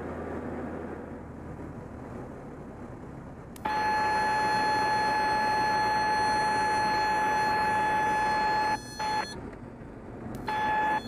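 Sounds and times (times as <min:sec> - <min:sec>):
stall warning horn tone: 0:03.6 - 0:09.4, 0:10.4 - 0:11.0.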